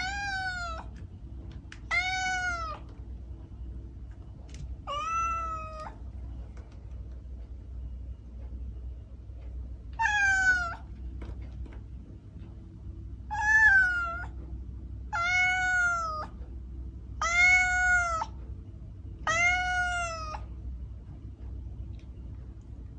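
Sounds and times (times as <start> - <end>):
cat meowing: 0.0 - 0.9, 1.8 - 2.9, 4.8 - 6.0, 10.0 - 10.9, 13.3 - 14.4, 15.1 - 16.4, 17.2 - 18.4, 19.2 - 20.5.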